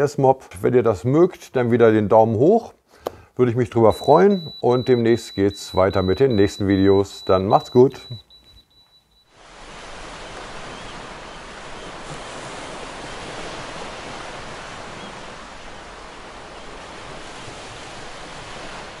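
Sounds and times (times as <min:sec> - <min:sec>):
sea waves rushing: 0:09.4 - 0:19.0.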